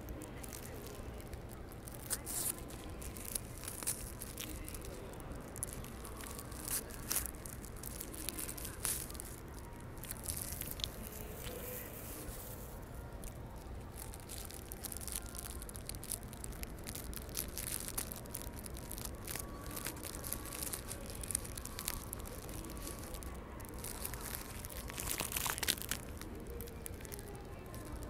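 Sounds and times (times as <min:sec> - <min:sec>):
fabric rustling against microphone: 0:00.0 - 0:28.0.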